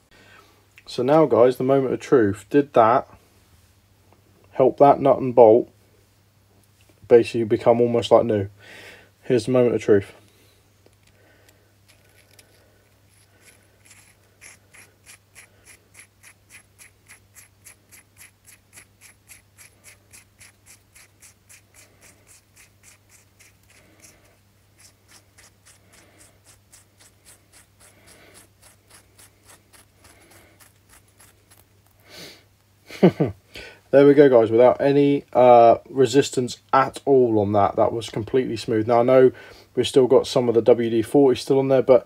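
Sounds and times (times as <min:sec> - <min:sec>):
steady low hum: 0:00.0 - 0:41.3.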